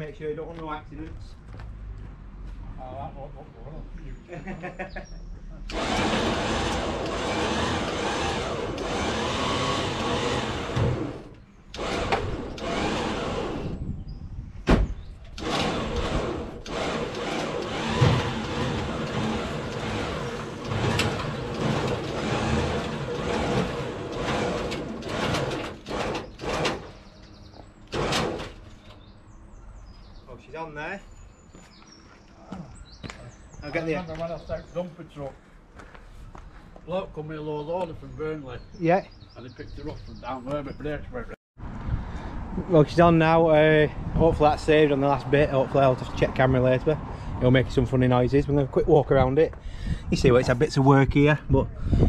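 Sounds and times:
winch hauling a car: 5.7 - 13.8, 15.3 - 29.1
sharp clunks: 14.6 - 15.8.

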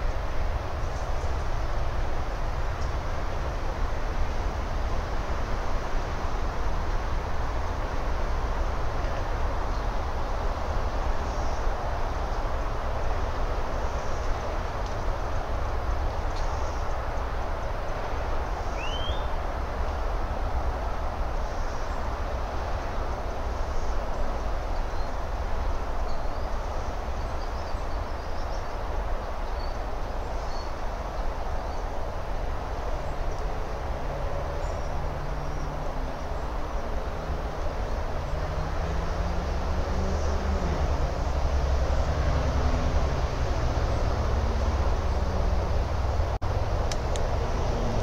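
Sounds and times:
distant engine rumble: 31.2 - 48.0.

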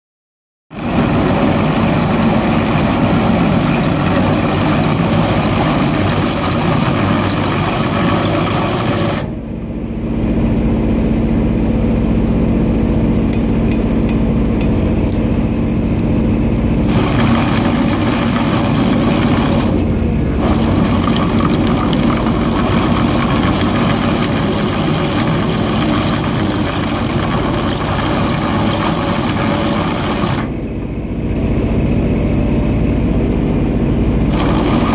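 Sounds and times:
trencher chain grinding soil: 0.7 - 9.4, 16.8 - 30.6, 34.2 - 34.9
excavator engine hum: 0.7 - 34.9.

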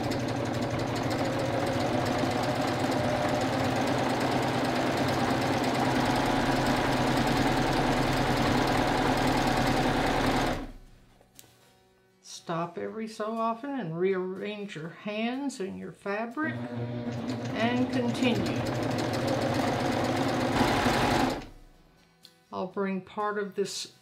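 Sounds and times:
overlock machine stitching: 0.0 - 10.8, 16.4 - 21.7.

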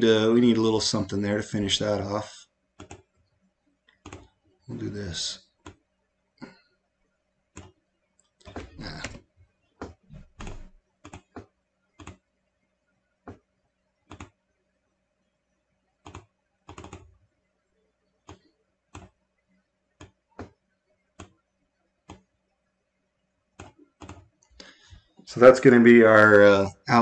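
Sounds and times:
mouse and keyboard clicking: 2.8 - 3.0, 4.0 - 4.3, 14.1 - 14.3, 23.6 - 24.2
faint steady hum: 4.7 - 5.4.

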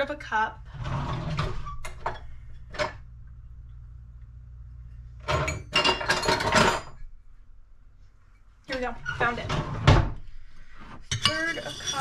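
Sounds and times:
low hum: 0.0 - 11.0
utensils and dishes clattering: 5.2 - 7.0, 11.0 - 12.0.

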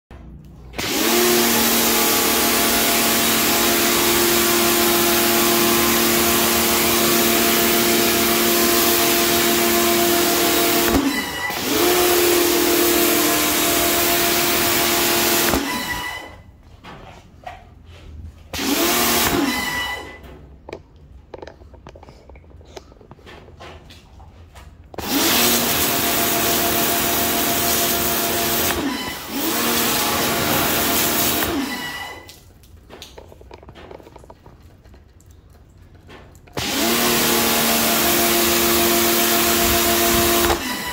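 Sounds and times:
pressure washer motor hum: 0.7 - 16.4, 18.5 - 20.2, 25.0 - 32.4, 36.6 - 40.9
high-pressure water jet hissing: 0.8 - 16.1, 25.0 - 32.3, 36.6 - 40.9.

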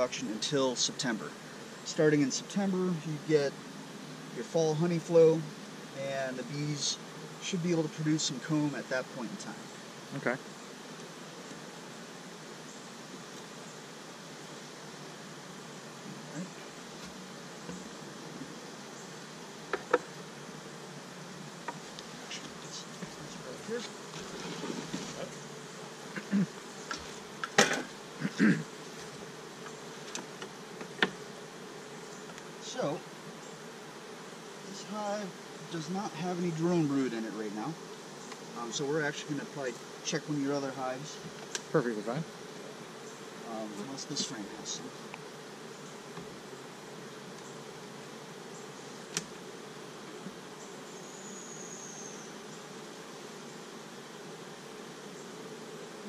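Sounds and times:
bee passing close: 0.0 - 56.0
honeybees buzzing: 0.0 - 56.0.

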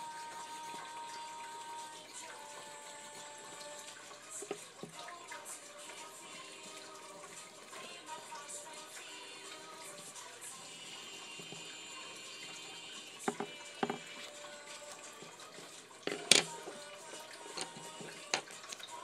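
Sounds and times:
faint background music: 0.0 - 19.0
taps on wooden tabletop: 13.3 - 14.0.

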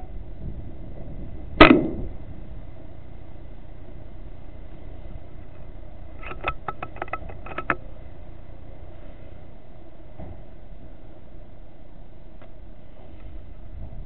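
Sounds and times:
air rifle shot: 1.6 - 2.2.

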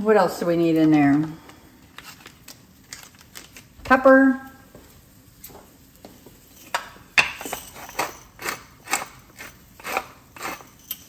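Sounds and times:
pepper mill grinding: 6.5 - 11.0.

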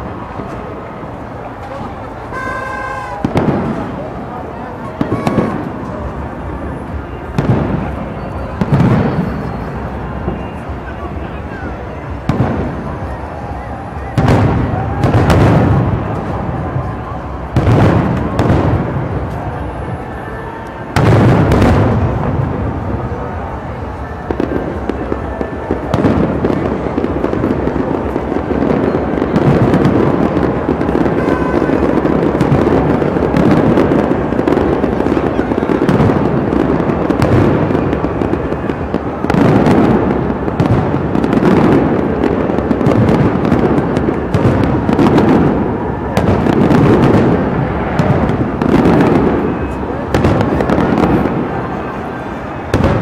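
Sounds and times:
fireworks booming and crackling: 0.0 - 53.0.

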